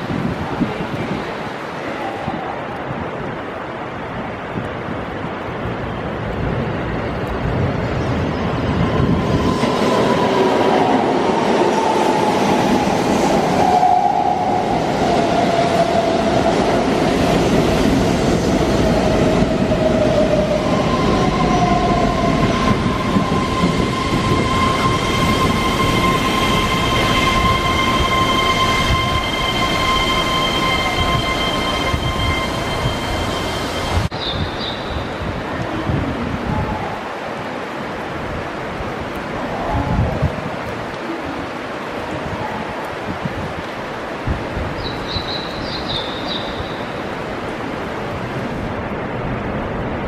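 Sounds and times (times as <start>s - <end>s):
train wheels rumbling on rail: 5.6s - 35.8s
steady high-pitched tone: 21.0s - 34.1s.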